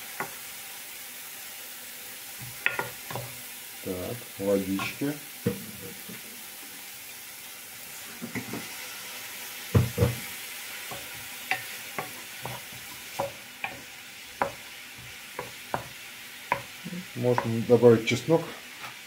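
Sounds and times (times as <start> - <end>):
onion sizzling in frying pan: 0.0 - 19.0
wooden spoon knocking pan: 2.5 - 3.3, 9.7 - 17.7.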